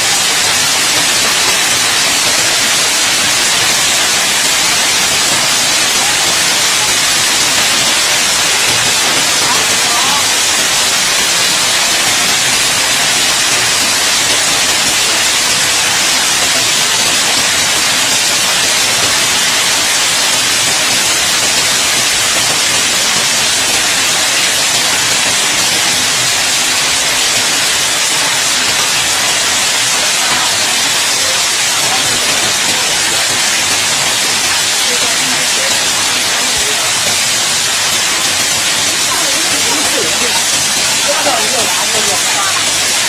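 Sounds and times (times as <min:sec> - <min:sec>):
hail pelting the ground: 0:00.0 - 0:43.0.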